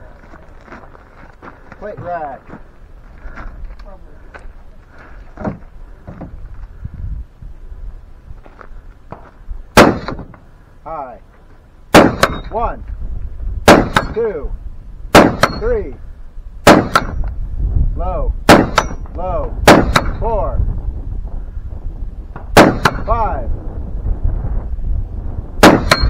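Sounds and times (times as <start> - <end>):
rifle shots: 9.7 - 10.3, 11.9 - 12.5, 13.6 - 14.2, 15.1 - 15.6, 16.6 - 17.2, 18.4 - 19.0, 19.6 - 20.2, 22.5 - 23.1, 25.6 - 26.0.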